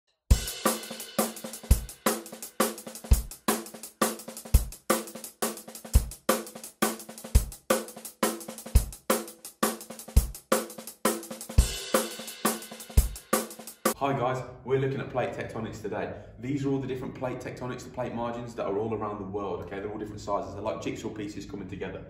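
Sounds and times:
drum kit beat: 0.3s - 14.0s.

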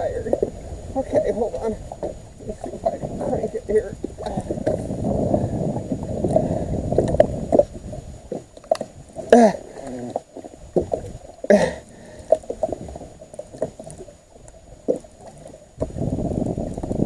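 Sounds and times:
steady low rumble: 0.0s - 9.2s
man grunting with effort: 9.3s - 10.2s, 11.5s - 11.9s.

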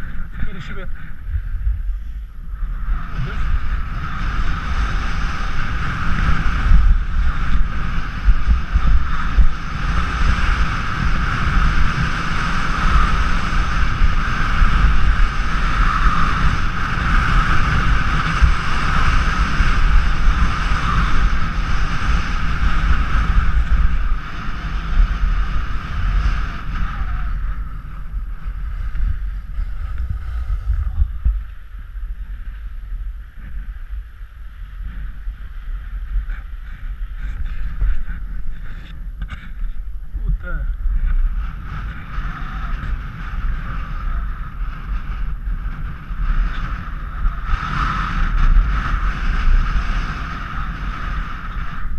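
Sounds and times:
wind buffeting microphone: 0.0s - 51.9s
skis scraping on snow: 2.6s - 39.8s.

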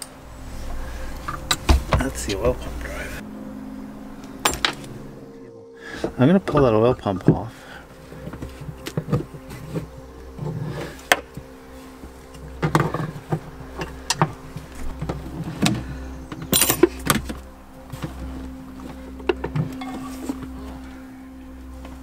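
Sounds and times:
steady hum: 0.0s - 22.0s
metal tools clinking: 4.4s - 5.0s, 12.3s - 17.5s, 19.6s - 20.5s.

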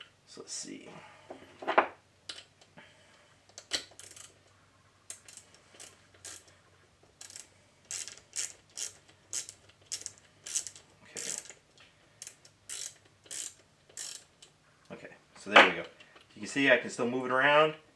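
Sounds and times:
hand tool clicking: 5.1s - 6.5s, 7.2s - 11.6s, 12.2s - 14.5s.

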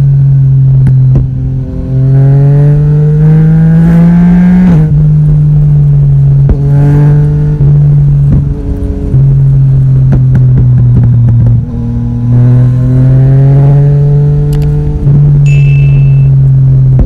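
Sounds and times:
motorcycle engine accelerating: 0.0s - 17.0s
wind rush on microphone: 8.0s - 11.8s.

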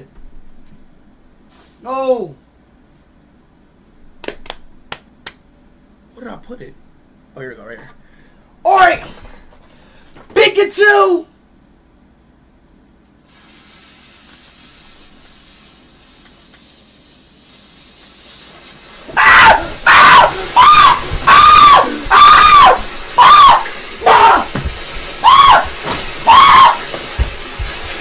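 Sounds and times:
man screaming short high yells: 8.7s - 9.1s, 19.2s - 24.6s, 25.2s - 26.8s
firework fountain hissing: 13.2s - 28.0s.

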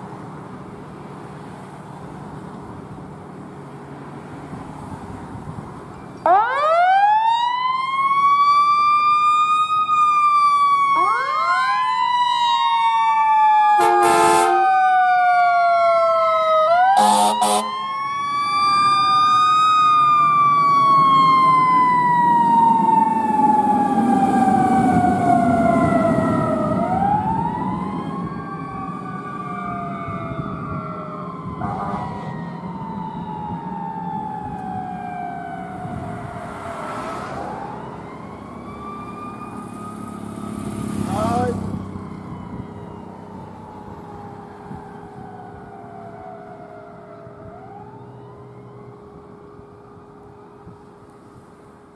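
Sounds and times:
faint second siren: 5.9s - 51.9s
fire engine siren winding: 6.2s - 40.7s
short horn blasts: 13.8s - 14.6s, 17.0s - 17.7s.

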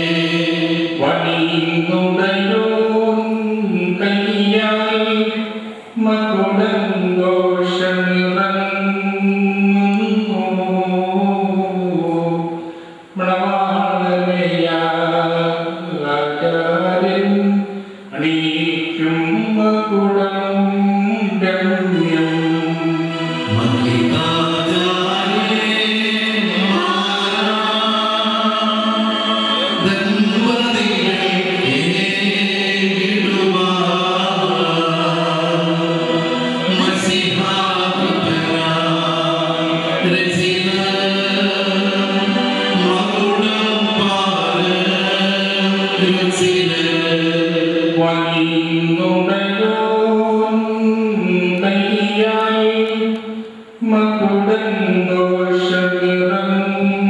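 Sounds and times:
voices singing a slow chant: 19.0s - 48.4s.

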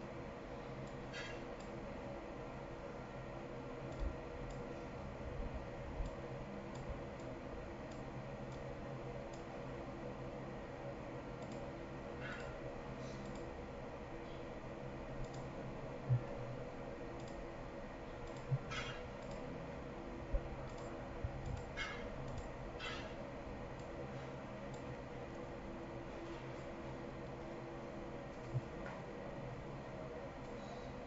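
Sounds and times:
low electrical hum: 0.0s - 31.0s
computer mouse clicks: 3.9s - 4.7s, 11.4s - 12.6s, 13.2s - 13.5s, 15.2s - 15.5s, 17.2s - 17.4s, 18.2s - 19.5s, 20.7s - 23.0s.

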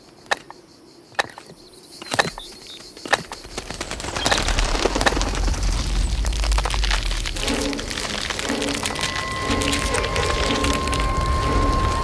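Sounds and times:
rattling crackle of ground breaking: 3.2s - 12.0s
deep earthquake rumble: 3.3s - 12.0s.

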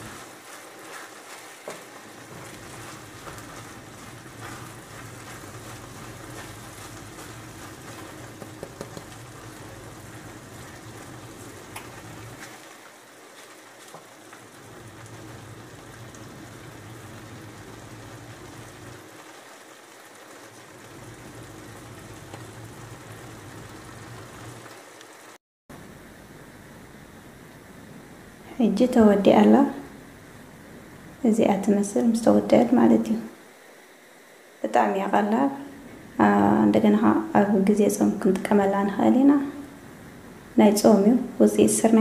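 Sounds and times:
food sizzling in a frying pan: 0.0s - 25.4s
wooden spatula clicking on pan: 8.4s - 9.2s.

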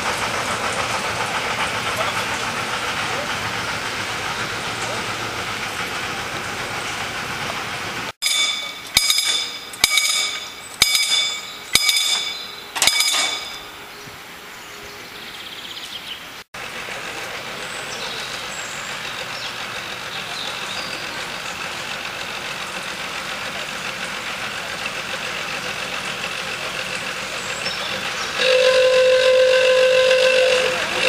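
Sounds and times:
level crossing warning bell: 8.2s - 13.8s.

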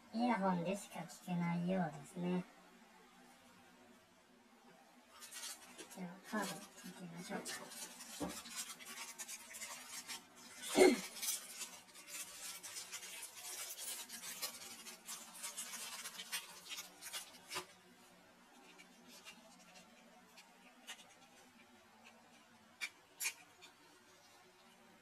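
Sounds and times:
plastic wrapping crinkling: 5.1s - 25.0s.

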